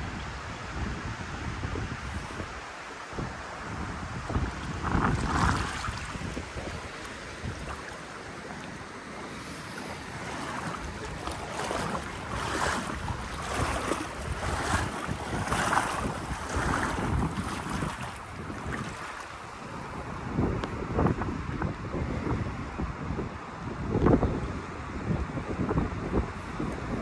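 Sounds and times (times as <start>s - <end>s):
wind buffeting microphone: 0.0s - 27.0s
river water rushing: 0.1s - 21.1s.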